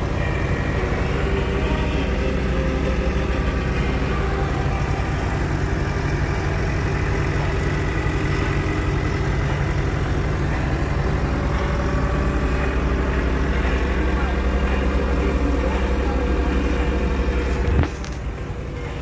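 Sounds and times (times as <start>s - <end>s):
tractor diesel engine running: 0.0s - 19.0s.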